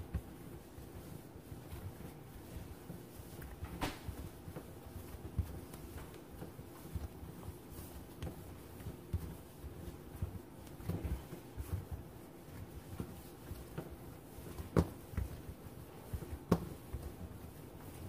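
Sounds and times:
dough kneading thuds: 0.0s - 18.0s.

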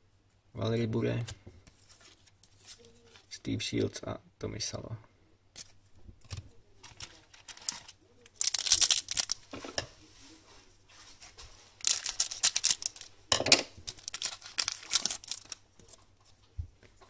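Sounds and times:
card pack wrapper crinkling: 6.3s - 9.5s, 11.8s - 13.1s, 13.8s - 16.0s.

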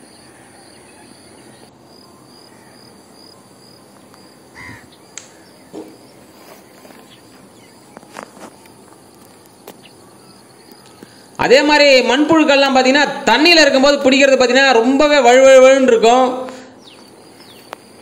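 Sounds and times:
background hiss: 0.0s - 15.1s, 15.9s - 18.0s
insects chirring: 0.0s - 18.0s
bird call: 4.5s - 11.4s.

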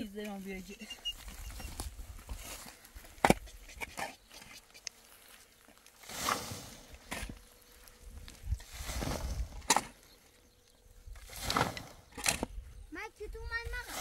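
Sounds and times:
dirt thrown and scattering: 1.2s - 10.1s, 11.1s - 12.7s.

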